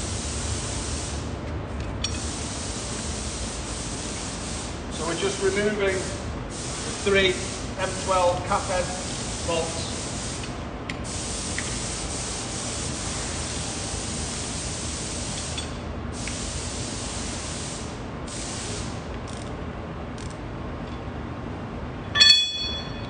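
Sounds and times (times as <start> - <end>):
steady hiss: 0.0 - 1.3, 2.1 - 19.1.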